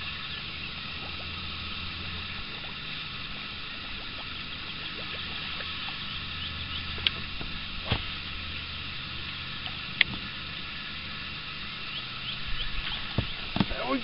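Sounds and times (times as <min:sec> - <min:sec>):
low hum: 0:00.0 - 0:14.0
steady hiss: 0:00.0 - 0:14.0
faint small ticks: 0:00.2 - 0:08.0, 0:08.8 - 0:10.7.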